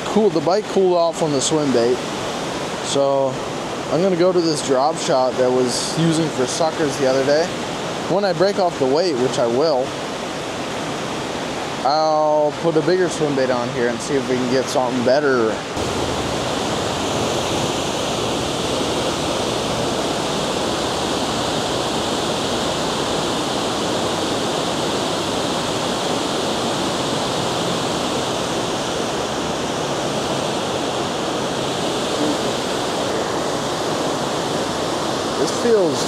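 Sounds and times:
water pouring over a spillway: 33.7s - 36.0s.

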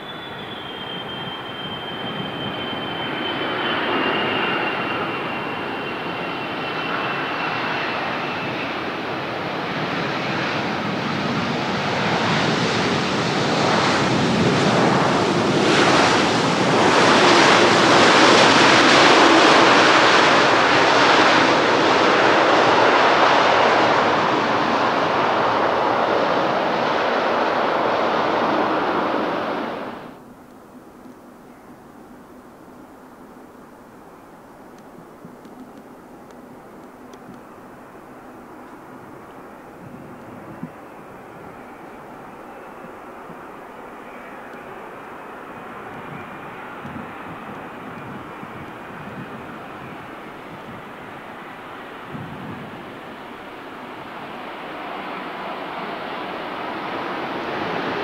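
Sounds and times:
falling engine whine: 0.0s - 30.2s
jet engines roaring: 0.0s - 30.3s, 35.3s - 58.0s.

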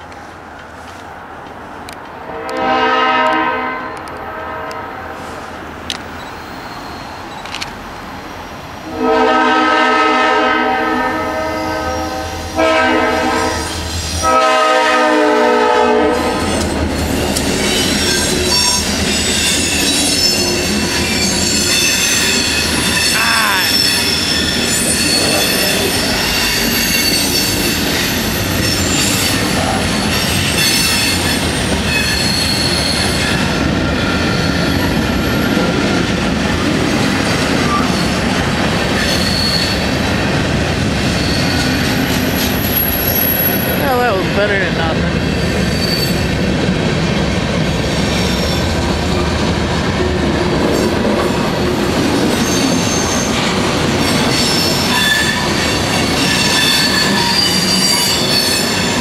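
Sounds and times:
train rail noise: 0.0s - 59.0s
train horn blasts: 2.2s - 5.4s, 8.9s - 16.6s
high-pitched wheel squeal: 6.2s - 7.5s, 17.6s - 33.4s, 39.0s - 40.0s, 54.0s - 59.0s.

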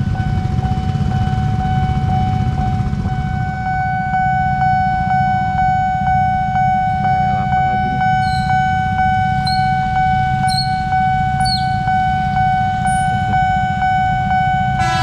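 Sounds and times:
low rumble of traffic: 0.0s - 15.0s
railroad crossing warning bell: 0.0s - 15.0s
short high chirps: 8.2s - 8.6s.

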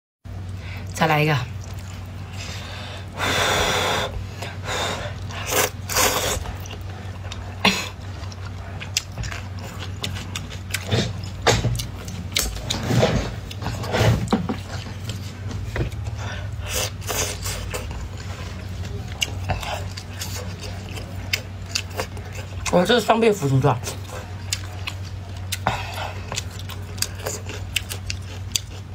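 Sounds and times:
steady low hum: 0.3s - 28.9s
chewing: 1.6s - 2.7s, 4.3s - 28.9s
noodles slurping: 3.1s - 11.3s.

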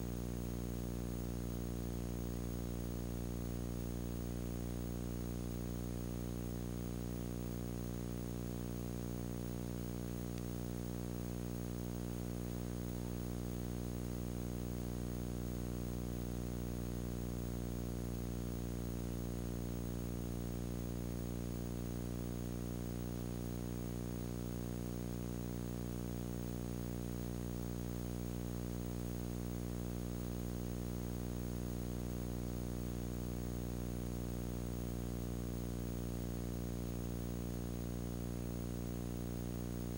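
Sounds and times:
electrical mains hum: 0.0s - 39.9s.

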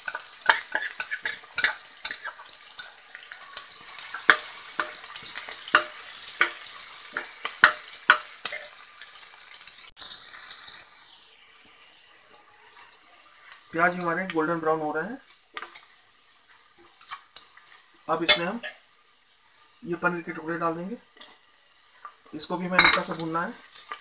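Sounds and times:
metal spoon scraping pot: 0.0s - 3.0s
onions sizzling in hot oil: 0.0s - 24.0s.

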